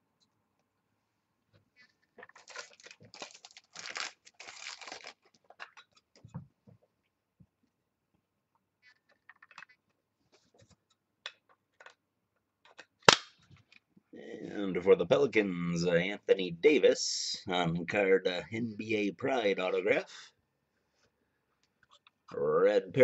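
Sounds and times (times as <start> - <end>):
plastic crinkling and rustling: 2.0 - 6.3.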